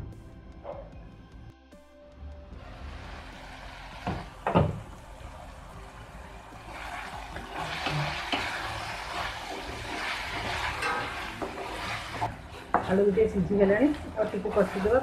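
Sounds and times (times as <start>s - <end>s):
spatula scraping and stirring: 6.6s - 15.0s
spatula knocking on pan: 12.6s - 13.1s.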